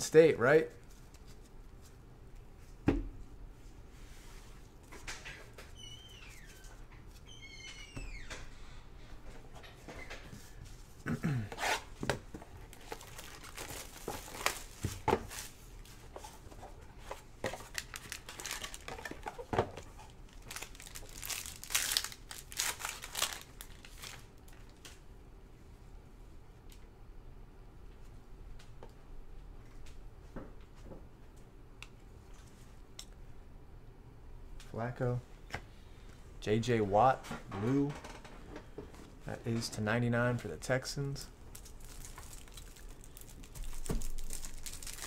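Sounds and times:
card wrappers crinkling and tearing: 12.6s - 15.4s, 17.5s - 24.6s, 41.5s - 45.0s.

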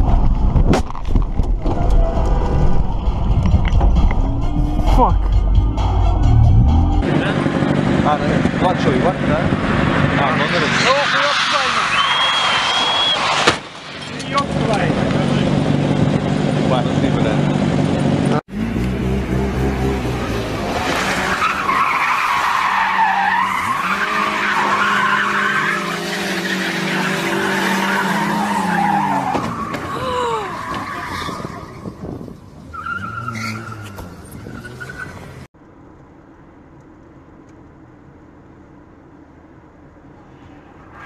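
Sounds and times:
car engine revving: 1.8s - 29.2s
road noise inside moving car: 6.3s - 41.0s.

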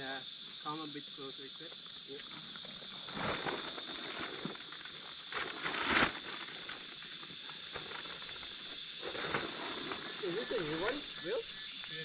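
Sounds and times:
high-pitched insect chorus: 0.0s - 12.0s
tarp rustling: 3.0s - 7.0s, 7.6s - 11.0s.

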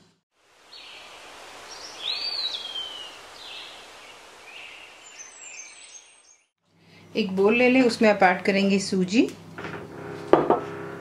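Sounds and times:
faint birds chirping: 0.7s - 7.1s.

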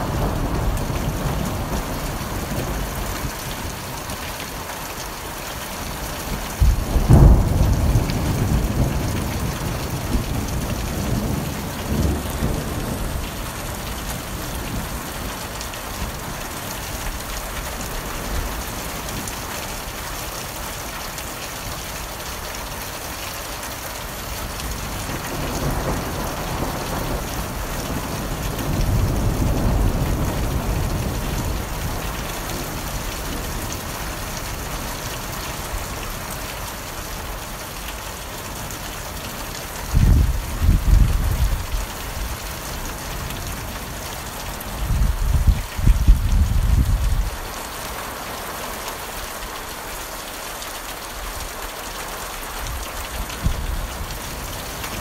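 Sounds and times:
heavy rain: 0.0s - 55.0s
thunder rolling: 6.6s - 15.2s, 39.9s - 41.8s.

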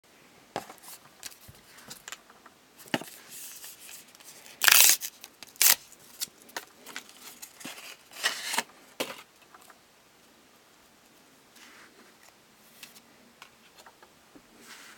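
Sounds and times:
foil wrapper crinkling: 4.5s - 6.3s
foil wrapper ripping: 4.6s - 5.9s.

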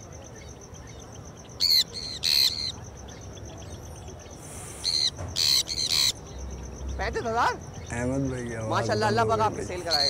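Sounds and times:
parrots screeching: 1.6s - 2.8s, 4.8s - 6.2s, 9.8s - 10.0s.

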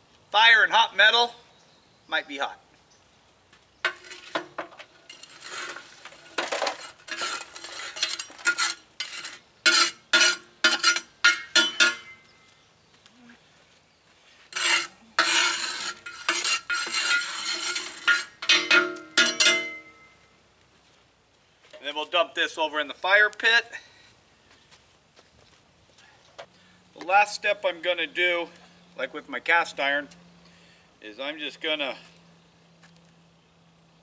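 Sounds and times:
metal spatula scraping metal: 3.9s - 12.2s, 14.5s - 20.1s.

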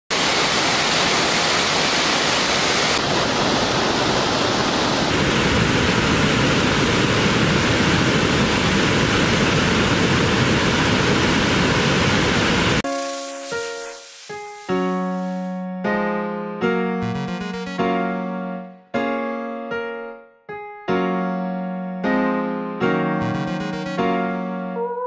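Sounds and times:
water rushing over weir: 0.1s - 15.4s.

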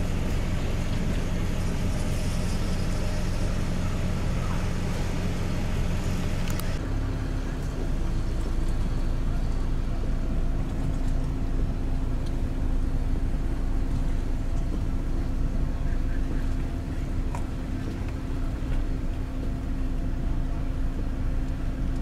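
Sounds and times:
engine humming steadily: 0.0s - 22.0s.

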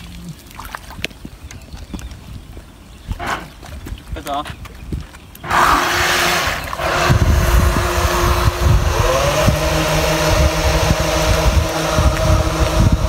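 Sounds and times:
wind on microphone: 0.0s - 13.0s
small boat motor whining: 5.4s - 13.0s
water spraying: 5.4s - 13.0s.

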